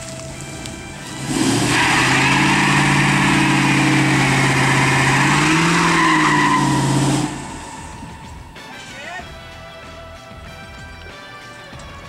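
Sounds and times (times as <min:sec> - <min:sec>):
tyres spinning and squealing: 0:00.9 - 0:08.6
car engine revving high: 0:01.0 - 0:08.4.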